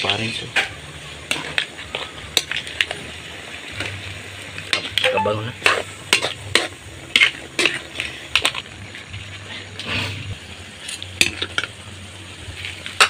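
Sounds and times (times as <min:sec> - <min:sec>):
utensil scraping a wok: 0:05.6 - 0:11.7.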